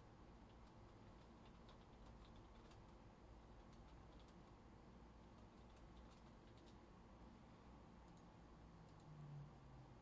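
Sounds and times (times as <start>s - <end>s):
low room hum: 0.0s - 10.0s
keyboard typing clicks: 0.5s - 2.9s.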